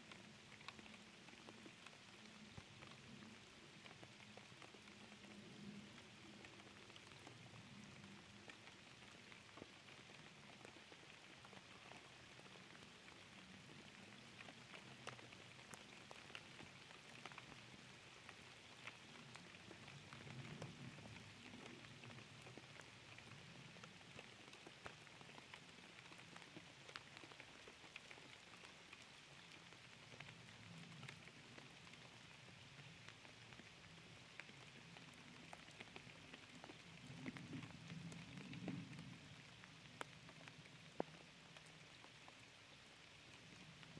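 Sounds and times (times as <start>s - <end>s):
rain falling on a pond: 0.0s - 43.9s.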